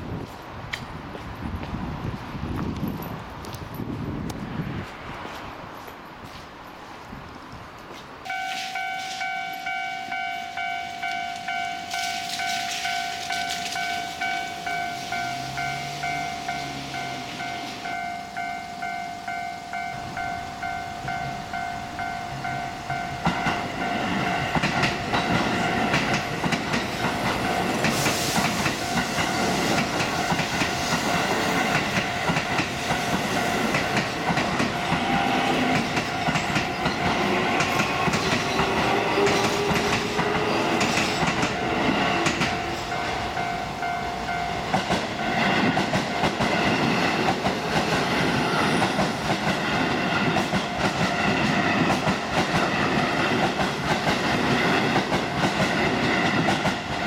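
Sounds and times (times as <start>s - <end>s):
trains rumbling past: 0.0s - 57.0s
wheels clattering on rail joints: 0.1s - 57.0s
level-crossing electronic bell: 8.3s - 26.0s, 41.2s - 46.4s.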